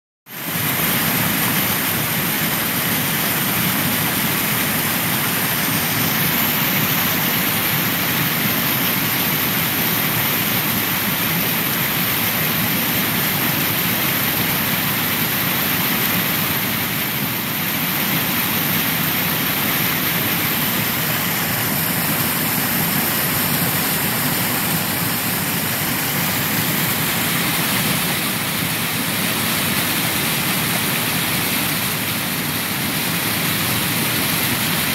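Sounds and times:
waterfall rushing: 0:00.4 - 0:34.9.

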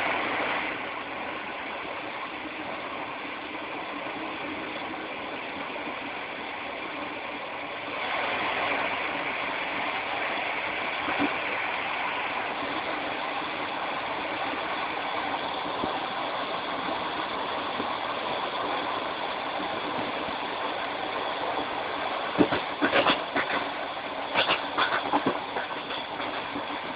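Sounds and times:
train wheels rumbling on rail: 0:00.0 - 0:26.9
wheel clacks over track: 0:22.4 - 0:26.9.

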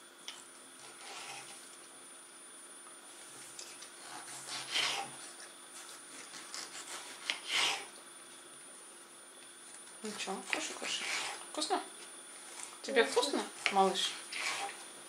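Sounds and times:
knife slicing tomato on board: 0:04.0 - 0:07.9.

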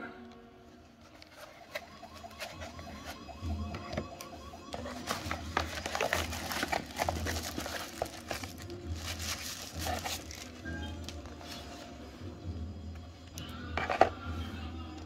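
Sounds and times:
television audio with low beat: 0:00.0 - 0:15.0
cardboard packaging rustling: 0:01.0 - 0:03.3, 0:04.7 - 0:11.9
tissue paper crinkling: 0:04.8 - 0:11.8.

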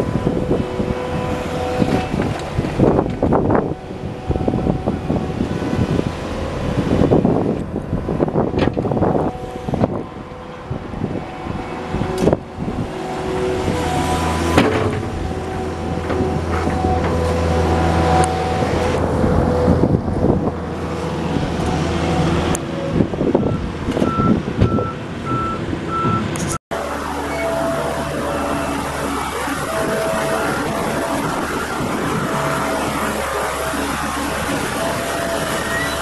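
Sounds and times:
loader engine running: 0:00.0 - 0:36.0
backup alarm beeping: 0:23.4 - 0:26.3.

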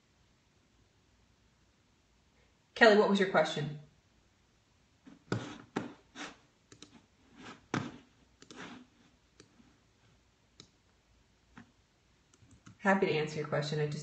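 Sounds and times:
mouse and keyboard clicks: 0:05.3 - 0:09.6.

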